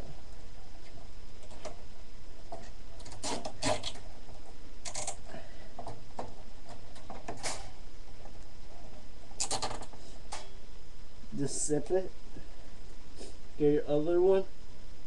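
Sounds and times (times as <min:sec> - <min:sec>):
cable ties and fan rattling on case: 0:02.4 - 0:10.0.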